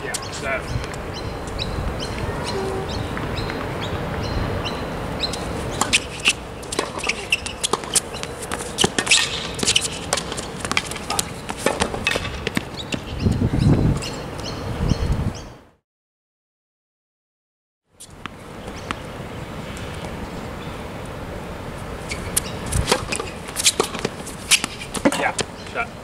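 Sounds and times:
tennis ball bouncing: 5.2 - 13.1, 22.2 - 25.6
racquets striking tennis ball: 5.3 - 13.1, 22.1 - 25.6
quick footsteps on court: 5.3 - 13.2, 22.2 - 25.8.

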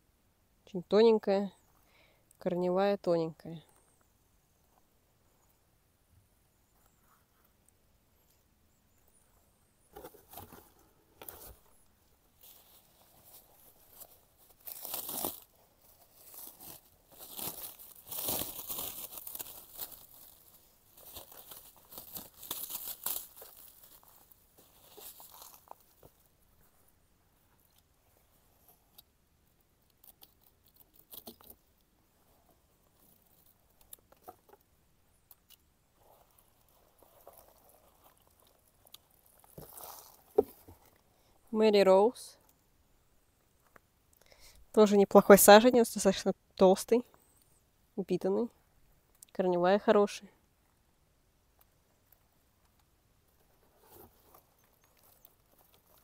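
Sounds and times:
sharp crackles: 12.4 - 26.1
wrapping crinkling and rustling: 12.4 - 26.2, 36.0 - 41.0, 53.4 - 56.0.

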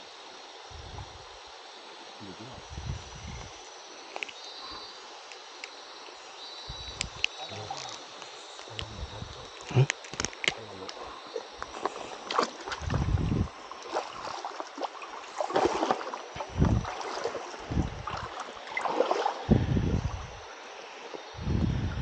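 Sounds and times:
clicks and rustling of handling: 7.0 - 11.0
water sloshing and splashing: 7.0 - 21.5.

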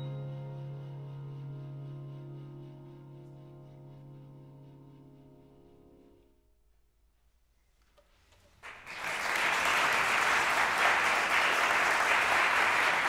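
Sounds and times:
audience applause: 8.6 - 13.0.

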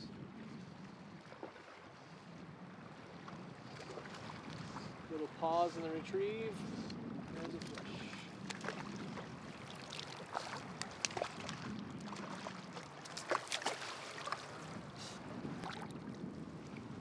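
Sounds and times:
sharp splashes and knocks: 7.4 - 14.8.

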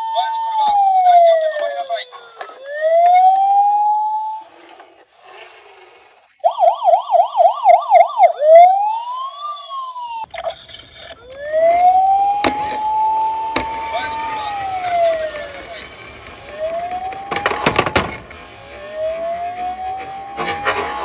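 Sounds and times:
toy police siren: 0.0 - 5.4, 6.3 - 21.0.

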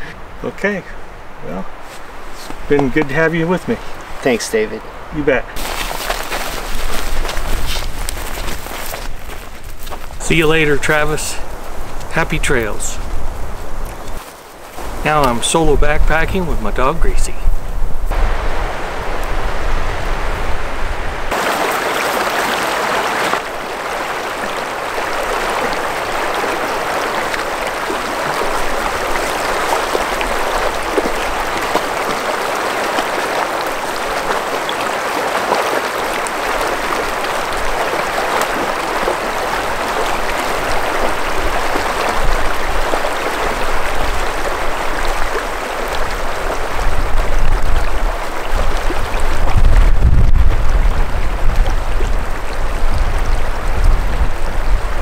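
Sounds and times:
river flowing over rocks: 21.3 - 55.0.

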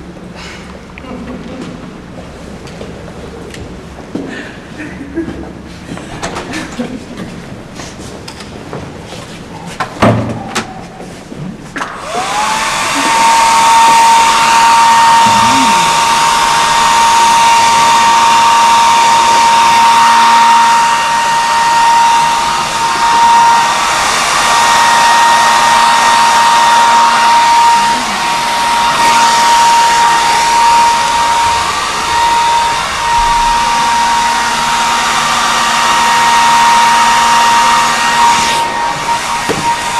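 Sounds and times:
hair dryer whining: 11.7 - 39.9.

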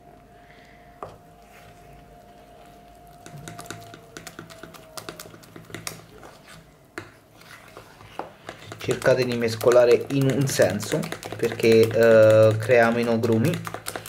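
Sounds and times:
metal utensil stirring batter: 3.1 - 14.0.

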